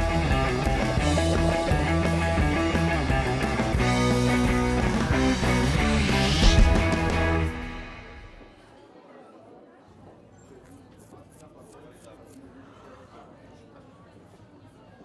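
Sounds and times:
theme music with steady beat: 0:00.0 - 0:08.6
rising whoosh: 0:03.7 - 0:08.6
loud hit: 0:03.8 - 0:08.7.

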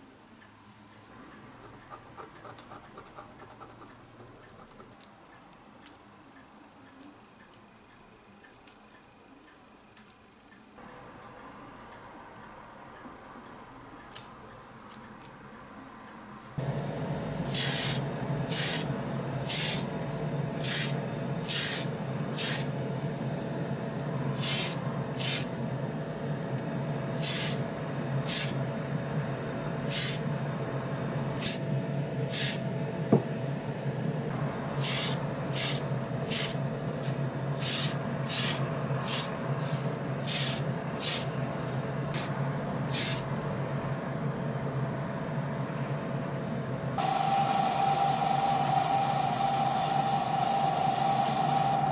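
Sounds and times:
spray hissing bursts: 0:16.6 - 0:22.7, 0:24.4 - 0:25.5, 0:27.2 - 0:27.6, 0:28.2 - 0:28.6, 0:29.8 - 0:30.2, 0:31.4 - 0:31.6, 0:32.3 - 0:32.6, 0:34.8 - 0:41.3, 0:42.9 - 0:43.2, 0:47.0 - 0:51.9
steady low hum: 0:16.6 - 0:51.9.

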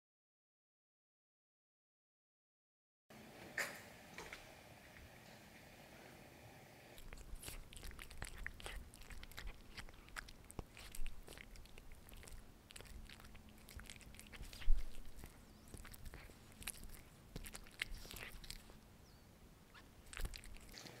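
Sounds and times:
cat chewing and crunching: 0:06.9 - 0:19.0, 0:19.7 - 0:21.0.

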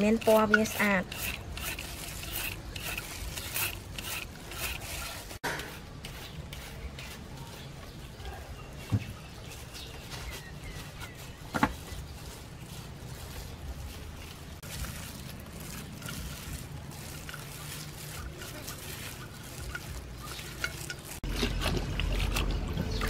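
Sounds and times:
carrot scraping on hand shredder: 0:00.0 - 0:07.8, 0:14.3 - 0:23.0.

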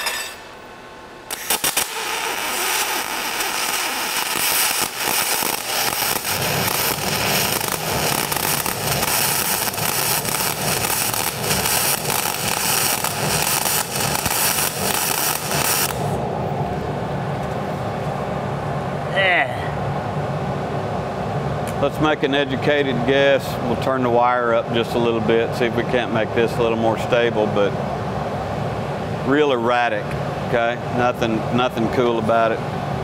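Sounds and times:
steady low hum: 0:00.0 - 0:33.0
welding arc crackling: 0:01.3 - 0:16.2.

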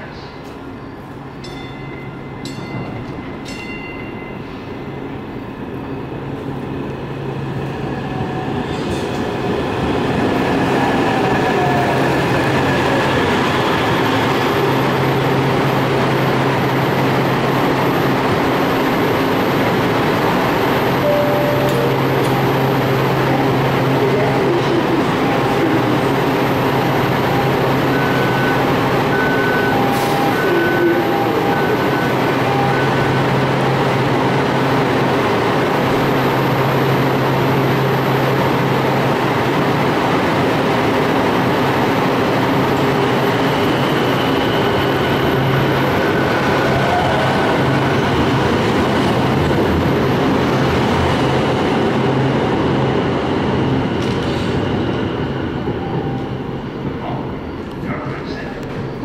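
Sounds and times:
train equipment humming: 0:10.1 - 0:59.0
two-pitch beeping chime: 0:21.0 - 0:22.6.

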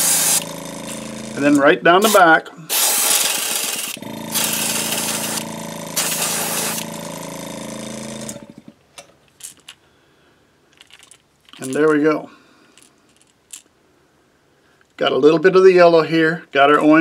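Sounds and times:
airbrush spraying paint: 0:00.0 - 0:07.0
air compressor motor humming: 0:00.0 - 0:08.8.

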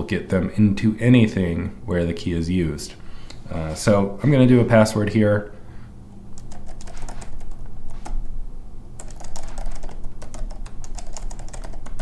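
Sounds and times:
computer keyboard keystrokes: 0:06.4 - 0:08.3, 0:09.0 - 0:12.0.

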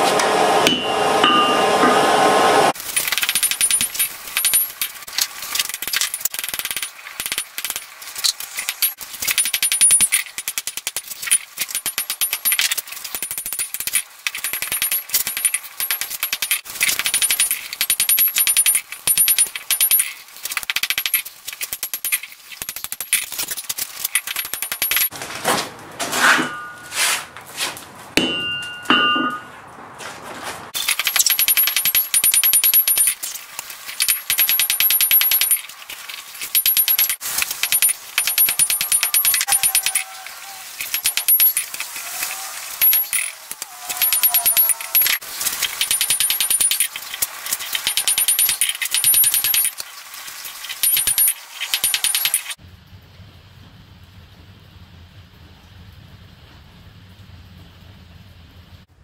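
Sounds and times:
hammer striking hot steel: 0:00.2 - 0:02.2, 0:26.2 - 0:27.0, 0:28.2 - 0:29.5
clear ringing tones: 0:00.7 - 0:02.1, 0:26.5 - 0:27.0, 0:28.3 - 0:29.6.

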